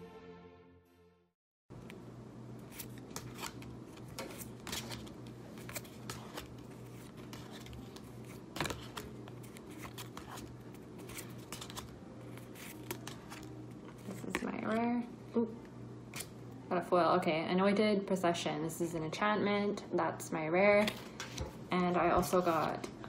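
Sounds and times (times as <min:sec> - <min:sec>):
steady low hum: 0:01.7 - 0:23.0
cards snapping and sliding: 0:02.7 - 0:13.6, 0:16.1 - 0:16.4.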